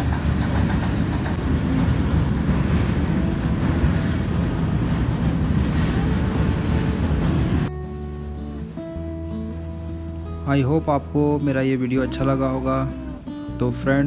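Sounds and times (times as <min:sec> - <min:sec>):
freight train wheels on track: 0:00.0 - 0:07.7.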